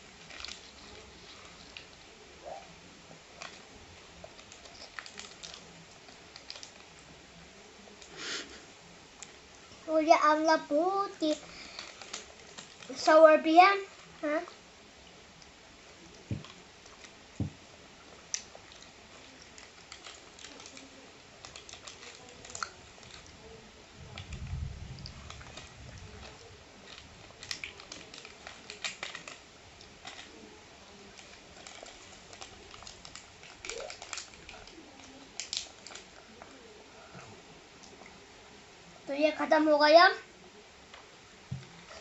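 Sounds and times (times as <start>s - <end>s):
small clicks and crinkles: 0.0s - 8.2s, 9.1s - 38.2s, 40.8s - 42.0s.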